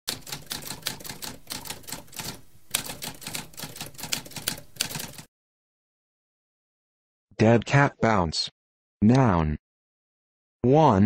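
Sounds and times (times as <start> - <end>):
typewriter keys clacking: 0.1 - 5.3.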